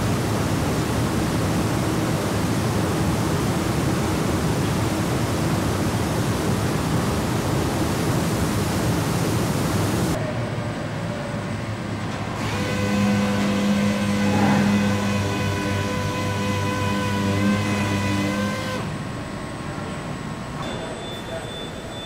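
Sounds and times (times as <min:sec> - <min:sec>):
ventilation air rushing: 0:00.0 - 0:12.4
factory background: 0:00.0 - 0:22.0.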